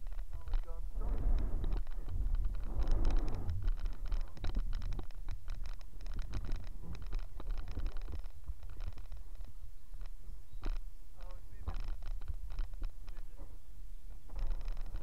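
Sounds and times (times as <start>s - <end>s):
small clicks and scratchy ticks: 0.0s - 15.0s
steady low rumble: 0.0s - 15.0s.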